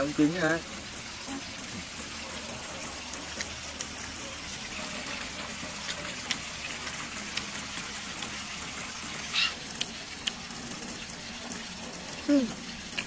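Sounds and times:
people chewing: 0:01.2 - 0:08.4, 0:09.3 - 0:11.0.

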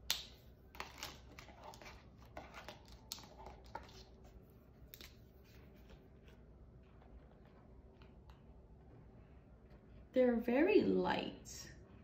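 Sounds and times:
pens rustling: 0:00.7 - 0:08.5.

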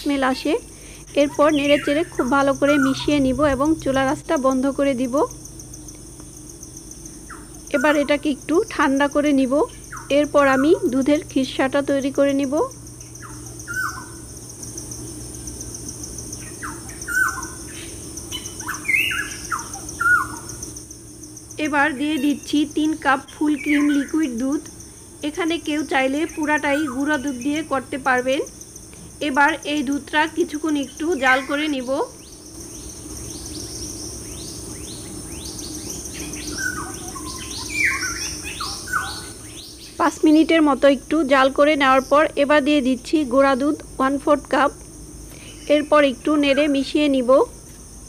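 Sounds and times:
high insect trill: 0:00.0 - 0:48.0
lower bird calls: 0:00.8 - 0:04.5, 0:12.5 - 0:15.0, 0:15.9 - 0:20.8, 0:21.6 - 0:27.8, 0:30.8 - 0:40.1
bird chirping: 0:00.8 - 0:04.6, 0:05.8 - 0:11.3, 0:12.4 - 0:20.8, 0:21.6 - 0:24.6, 0:30.7 - 0:40.5.

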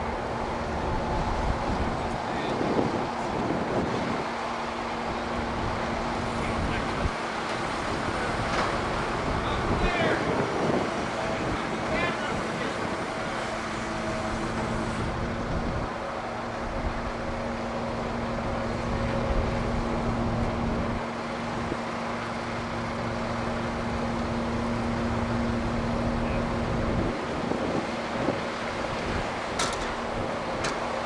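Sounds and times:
crane diesel engine humming: 0:00.0 - 0:31.0
wind on microphone: 0:00.9 - 0:04.3, 0:09.2 - 0:13.3.

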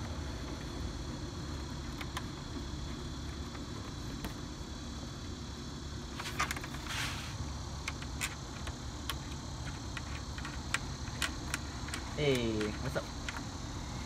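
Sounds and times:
bolts and plastic clips rattling: 0:07.8 - 0:13.5.

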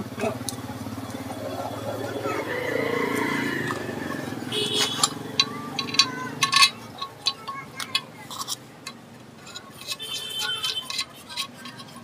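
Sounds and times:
metal engine parts clinking: 0:03.6 - 0:12.0.

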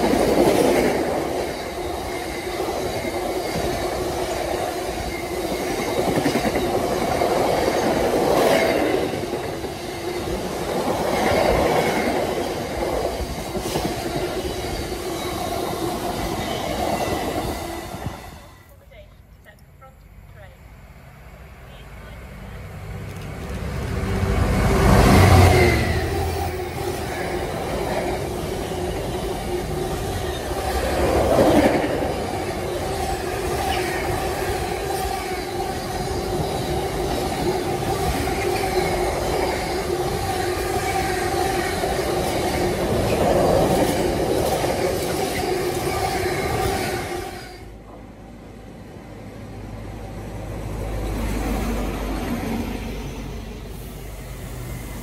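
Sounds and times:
diesel locomotive passing: 0:00.0 - 0:55.0.

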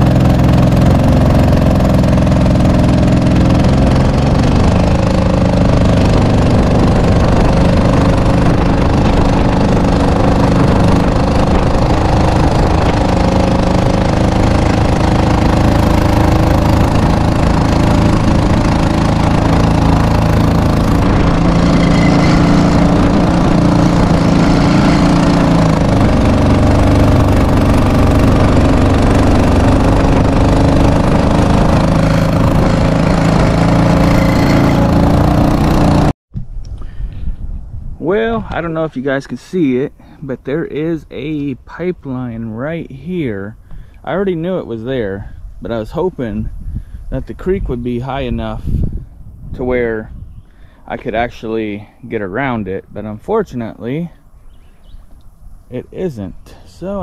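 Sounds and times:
water rushing along hull: 0:00.0 - 0:36.0
small boat engine running: 0:00.0 - 0:36.2.

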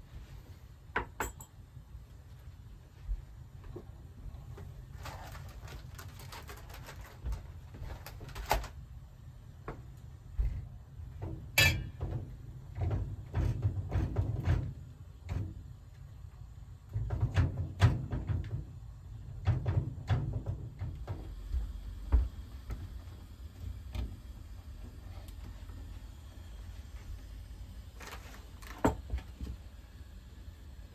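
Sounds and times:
pot and lid clinking: 0:11.6 - 0:12.0
footsteps on wooden floor: 0:21.5 - 0:22.4.

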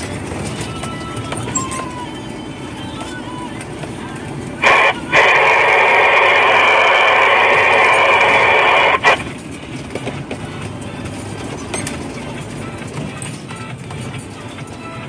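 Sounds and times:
low vehicle rumble: 0:00.0 - 0:15.0
two-way radio hissing: 0:04.4 - 0:09.3
radio squelch burst: 0:04.6 - 0:09.2.

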